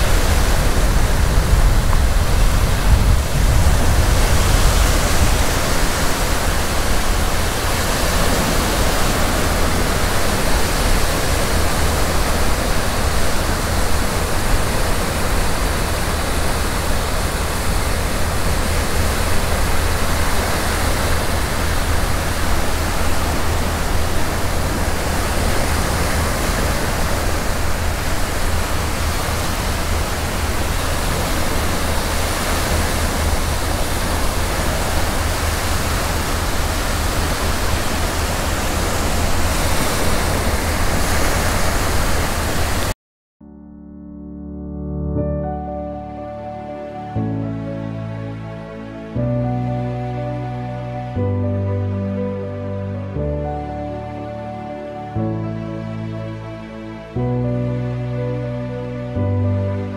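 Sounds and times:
wind buffeting microphone: 0.0 - 42.9.

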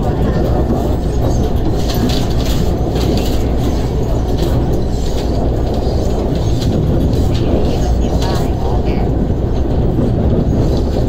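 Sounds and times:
train wheels on rails rumble: 0.0 - 11.0.

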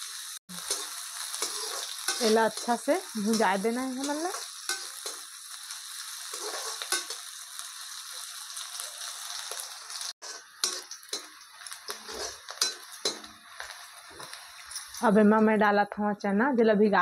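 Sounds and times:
vegetables sizzling in oil: 0.0 - 15.6
spoon scraping and tapping pan: 0.7 - 5.2, 6.3 - 7.2, 10.2 - 15.0.

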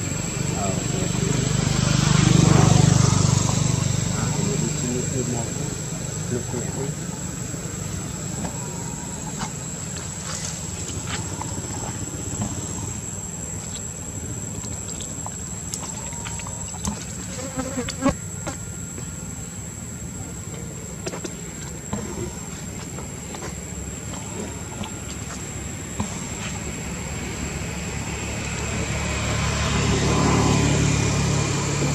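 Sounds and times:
high-pitched insect drone: 0.0 - 20.9.

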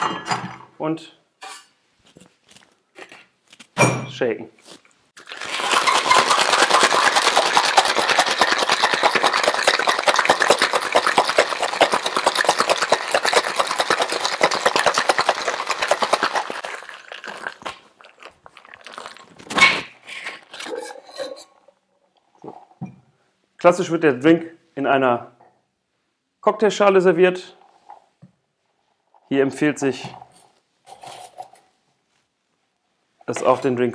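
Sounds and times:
shaker tins knocked apart: 5.2 - 17.9
ice rattling in cocktail shaker: 5.2 - 21.6.

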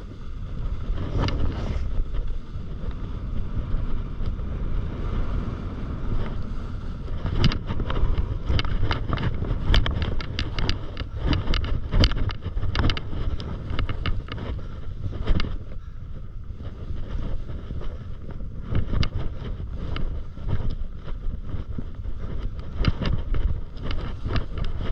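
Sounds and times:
skis sliding on snow hiss: 0.0 - 3.9, 23.9 - 24.9
wind on microphone: 0.0 - 24.9
ski edges scraping crusted snow: 0.1 - 3.6, 5.3 - 15.9, 16.5 - 24.9.

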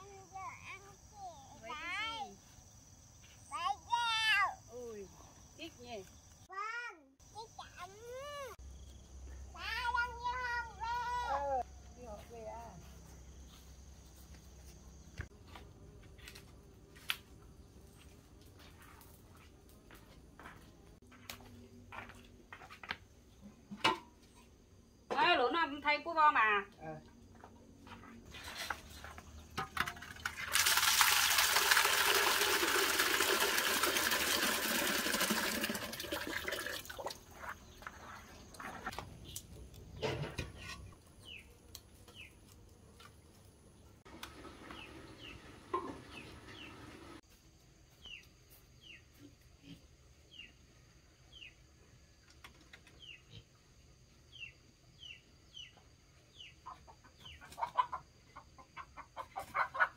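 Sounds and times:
water gushing: 30.0 - 37.3
birds chirping: 44.4 - 47.2.

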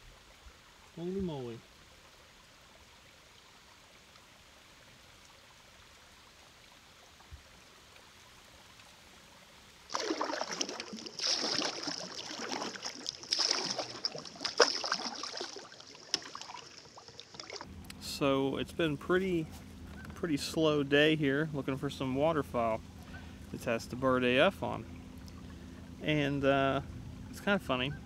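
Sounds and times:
water splashing and trickling: 0.0 - 19.4.

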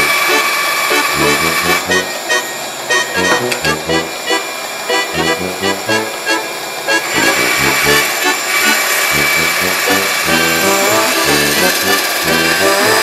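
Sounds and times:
music with rhythmic bass line: 1.1 - 4.4, 5.0 - 6.4, 7.2 - 8.2, 9.2 - 13.0.

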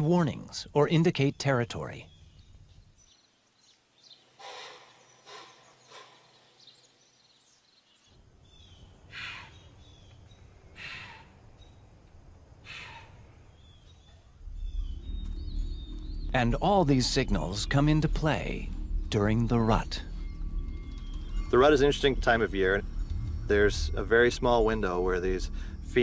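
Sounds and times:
faint birdsong: 0.0 - 26.0
low rumble: 13.2 - 26.0.

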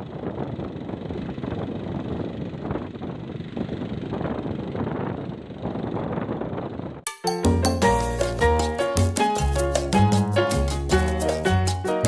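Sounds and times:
water pump engine running: 0.0 - 7.0.

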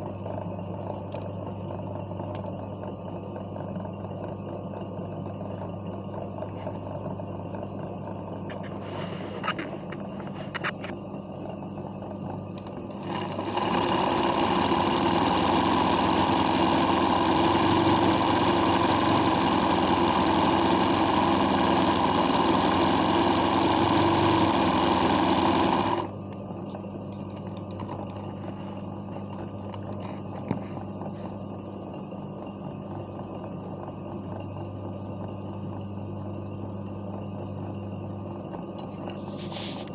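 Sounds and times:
steady low hum: 0.0 - 39.9
sewing machine stitching: 12.9 - 26.1.

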